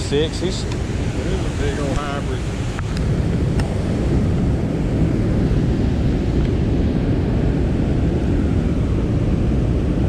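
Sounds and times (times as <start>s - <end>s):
rushing river current: 0.0s - 7.6s
wind buffeting microphone: 0.0s - 10.0s.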